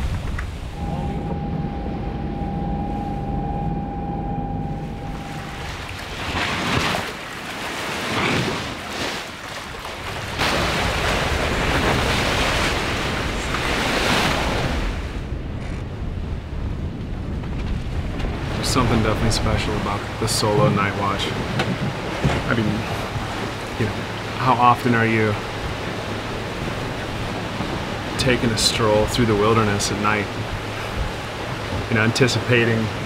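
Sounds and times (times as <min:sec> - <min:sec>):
low rumble: 0:00.0 - 0:06.6
water rushing past a boat: 0:00.0 - 0:33.0
faint steady tone: 0:00.8 - 0:06.0.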